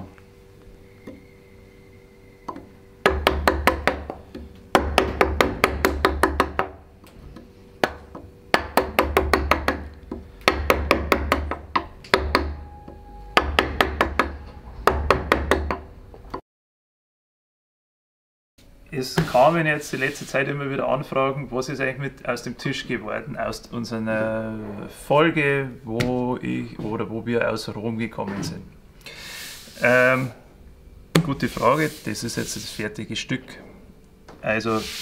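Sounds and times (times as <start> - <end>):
mallet striking gouge into wood: 2.5 - 6.8, 7.8 - 12.7, 13.4 - 15.8.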